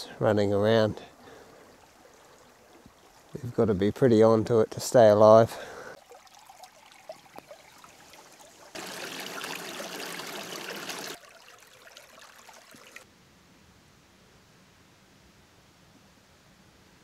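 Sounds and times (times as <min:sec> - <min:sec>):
creek water running over stones: 0:00.5 - 0:13.1.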